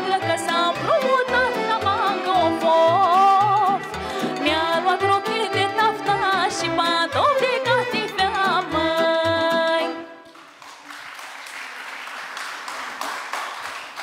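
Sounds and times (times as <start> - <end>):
woman singing: 0.0 - 10.2
folk band playing: 0.0 - 10.3
audience applause: 10.2 - 14.0.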